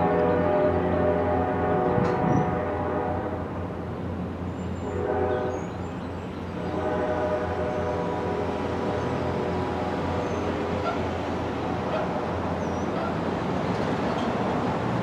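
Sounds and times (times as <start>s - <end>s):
locomotive air horn blasts: 0.0s - 3.5s, 4.8s - 5.7s, 6.6s - 11.1s
moving train rumble: 0.0s - 15.0s.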